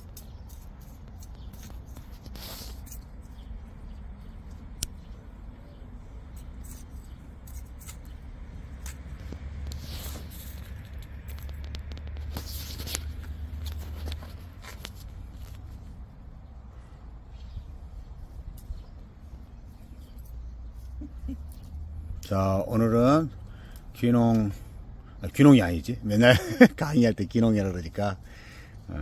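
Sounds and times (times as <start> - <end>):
trowel scraping soil: 0.0 - 3.6, 6.3 - 15.6.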